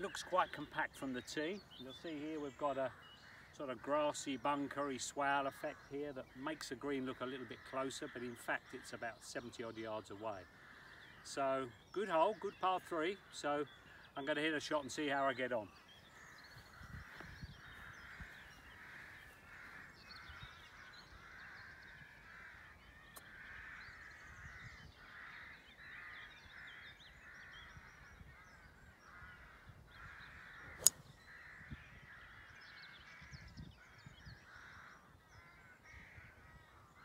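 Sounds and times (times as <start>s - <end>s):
birdsong and calls: 0.0s - 37.0s
golf club striking ball: 30.8s - 31.1s.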